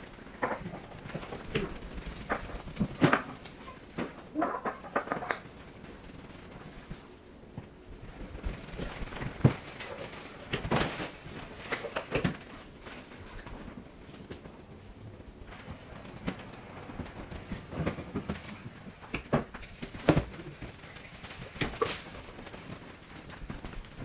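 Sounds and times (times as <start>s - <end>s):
plastic bags rustling: 15.4s - 24.0s.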